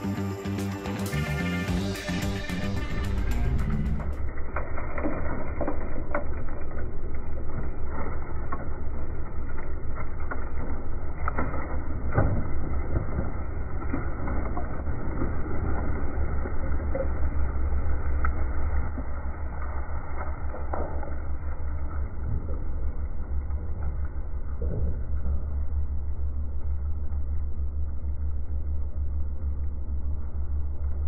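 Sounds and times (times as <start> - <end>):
dirt bursting: 0.0 - 21.2.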